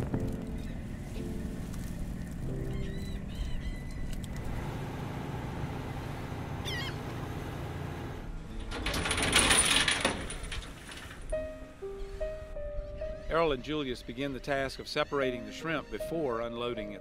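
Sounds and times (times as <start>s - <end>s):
boat engine rumbling: 0.0s - 12.7s
short bird call: 6.6s - 7.1s.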